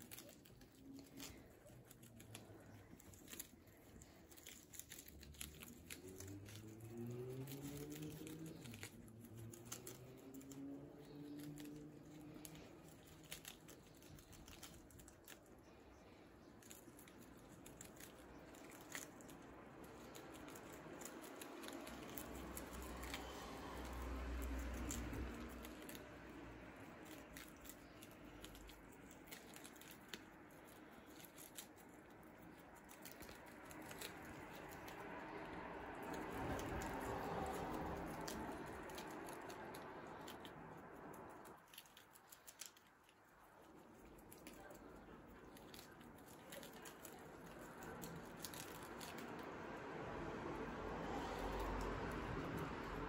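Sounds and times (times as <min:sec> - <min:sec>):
guinea pigs munching lettuce: 0:00.0 - 0:53.0
leaves rustling: 0:00.0 - 0:53.0.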